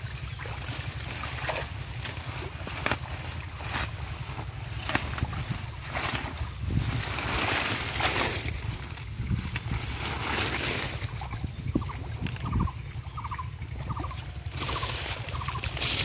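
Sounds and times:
steady low rumble: 0.0s - 16.0s
wet leaves rustling: 0.0s - 16.0s.

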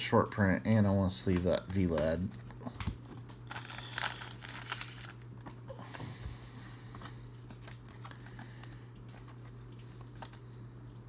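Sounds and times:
steady low hum: 0.0s - 11.0s
trading cards rustling and tapping: 1.1s - 5.6s.

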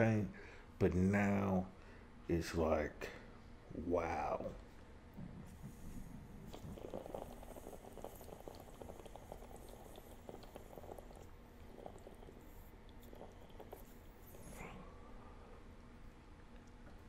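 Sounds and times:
water bubbling in a vaporizer: 6.4s - 14.2s.

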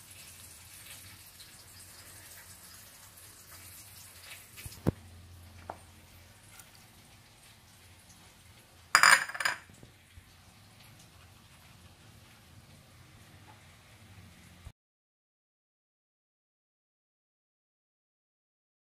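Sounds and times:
hot oil sizzle: 0.0s - 14.7s
steel kitchenware knocks: 9.0s - 9.6s.

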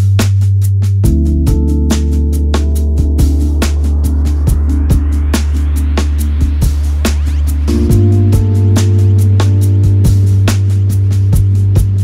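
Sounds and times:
electronic music with heavy bass: 0.0s - 12.0s
rising synth sweep: 1.1s - 11.7s.

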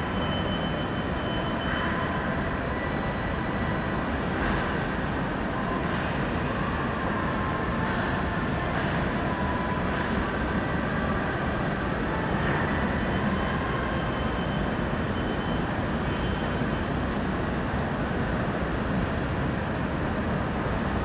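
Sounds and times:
faint high whining tones: 0.0s - 4.3s.

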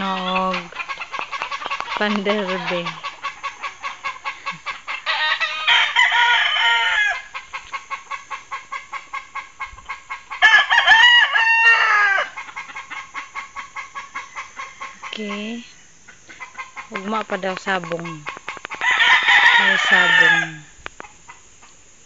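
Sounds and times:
rapid steady ticking: 0.0s - 5.0s, 12.4s - 18.8s
rooster crowing: 0.0s - 7.4s, 10.3s - 13.0s, 14.0s - 15.2s, 18.8s - 20.8s.

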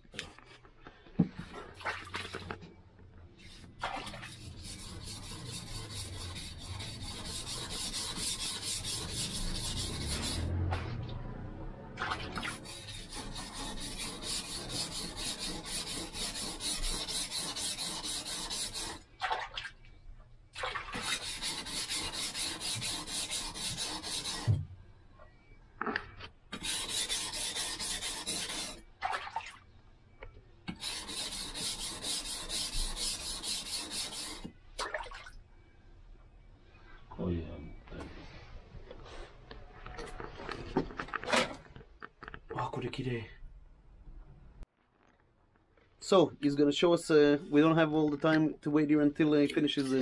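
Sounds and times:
knife scraping on whetstone: 4.3s - 10.5s, 12.5s - 19.0s, 21.0s - 24.5s, 26.5s - 28.8s, 30.7s - 34.5s.

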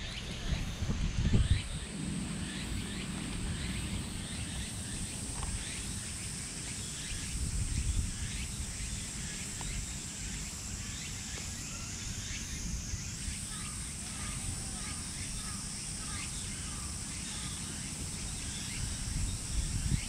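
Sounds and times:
low wind rumble: 0.0s - 10.6s, 12.0s - 20.0s
insects droning: 0.0s - 20.0s.

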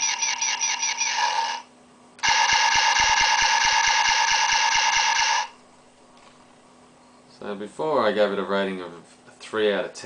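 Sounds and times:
pulsing buzzy toy sound: 0.0s - 5.6s.

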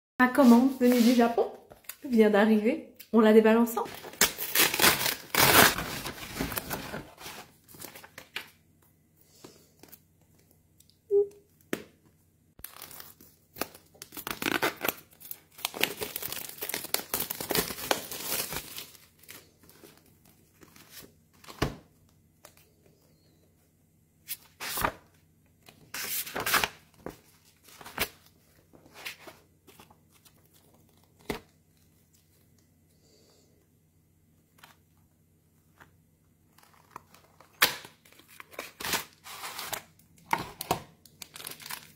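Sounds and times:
packaging tearing and rustling: 3.9s - 8.5s, 12.6s - 20.0s, 36.5s - 41.9s.

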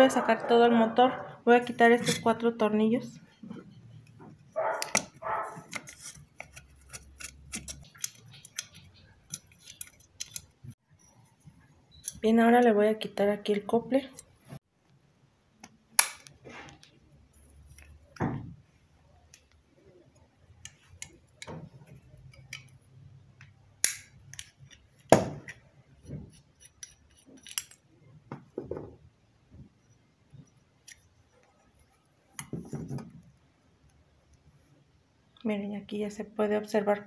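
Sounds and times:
handling noise: 3.4s - 10.8s
metal clicks of hand tools: 4.8s - 10.6s, 26.6s - 27.8s.

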